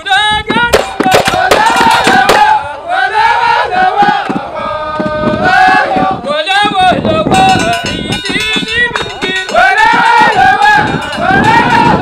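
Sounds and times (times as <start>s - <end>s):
hand claps and beats: 0.6s - 2.5s, 7.3s - 10.5s
men chanting together: 0.7s - 7.0s, 9.0s - 12.0s.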